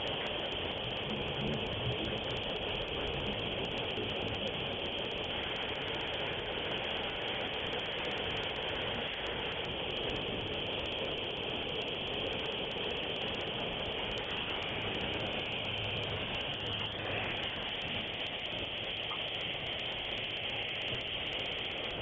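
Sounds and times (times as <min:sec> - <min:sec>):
factory machinery humming: 0:08.3 - 0:22.0.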